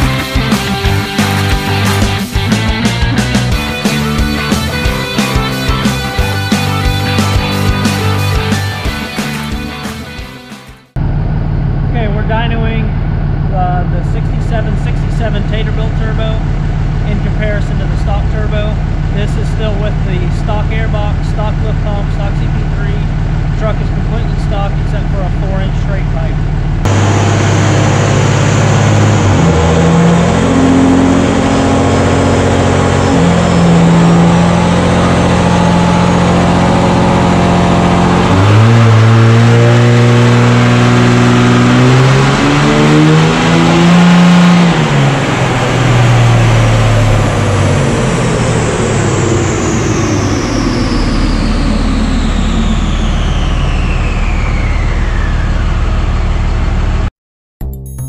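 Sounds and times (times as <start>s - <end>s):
diesel engine on dyno: 0.0s - 10.0s, 10.9s - 57.1s
high whine falling in pitch: 11.0s - 57.1s.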